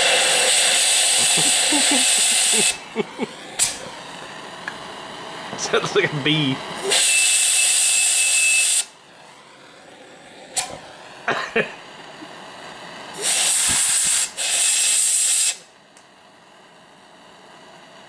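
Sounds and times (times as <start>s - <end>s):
compressed air nozzle hissing: 0.0s - 2.8s, 3.6s - 3.9s, 6.8s - 8.9s, 13.2s - 15.6s
short sharp pops: 3.6s - 3.8s.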